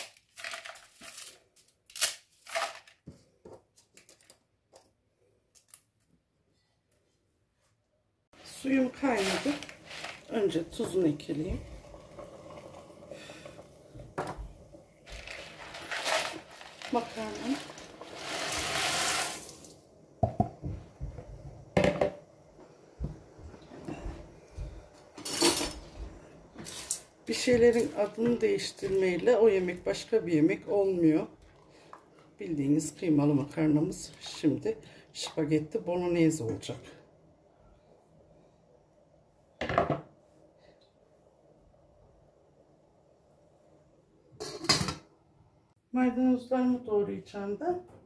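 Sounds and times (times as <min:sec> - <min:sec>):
dry spaghetti pouring into pot: 0:08.4 - 0:13.9, 0:15.0 - 0:19.8.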